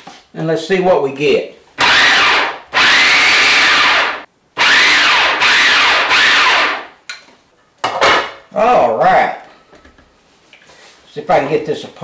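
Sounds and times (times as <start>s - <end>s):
blender motor pulsing: 1.8s - 6.9s.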